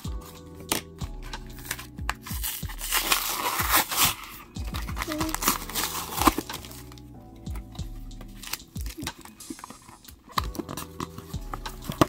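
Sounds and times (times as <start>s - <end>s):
background music: 0.0s - 12.0s
blister pack crinkling and tearing: 1.6s - 7.1s, 8.4s - 9.7s.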